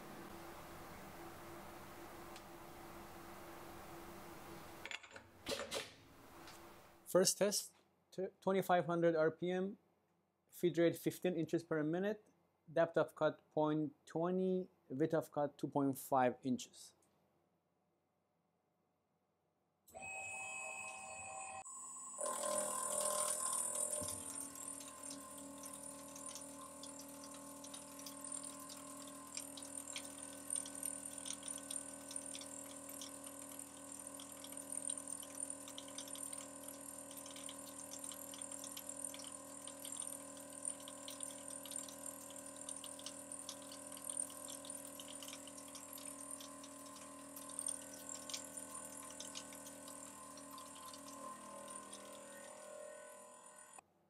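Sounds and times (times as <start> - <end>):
milling machine whine: 20.0 - 53.8.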